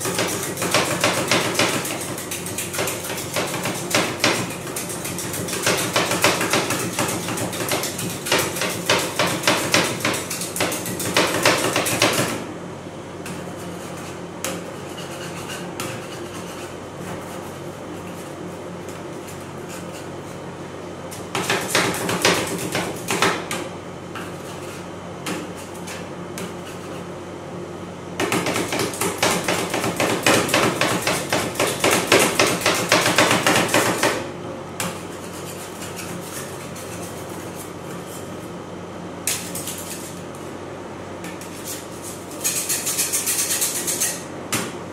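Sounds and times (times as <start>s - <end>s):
spatulas scraping: 13.3s - 18.4s, 39.3s - 40.4s, 41.3s - 44.3s.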